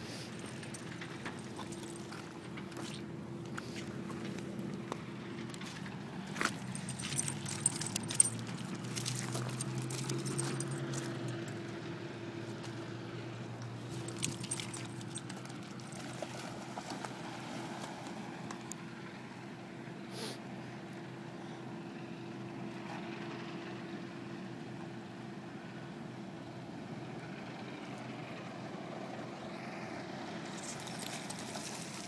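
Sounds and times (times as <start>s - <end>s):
engine hum: 0.0s - 32.0s
footsteps on loose rocks: 0.4s - 11.3s, 13.8s - 17.0s.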